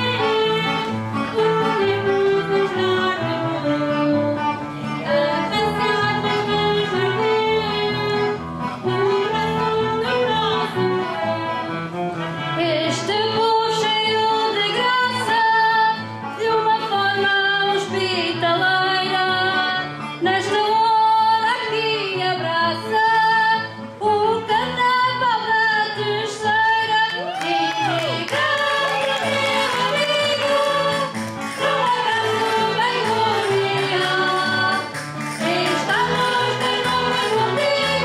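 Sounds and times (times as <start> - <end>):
women singing into microphones: 0.0 - 11.6, 12.6 - 38.0
small band playing: 0.0 - 13.2, 27.2 - 38.0.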